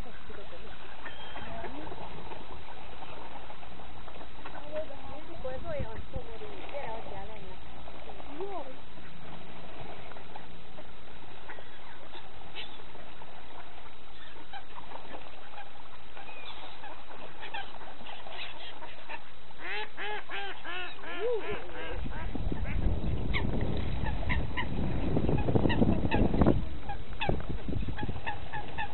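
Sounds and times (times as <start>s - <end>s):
water birds calling: 0.0s - 28.9s
honking calls: 0.8s - 2.0s, 16.3s - 23.4s.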